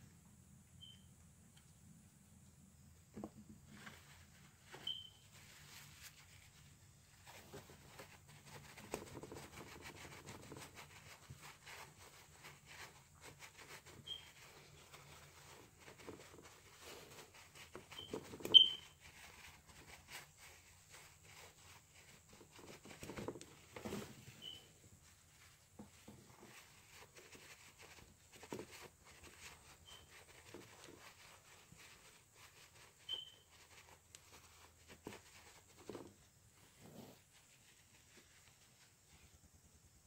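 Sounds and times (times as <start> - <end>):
short high chirps: 0.8 - 1.1, 4.8 - 5.2, 18.5 - 19.0
tissue rustling and patting: 3.7 - 39.3.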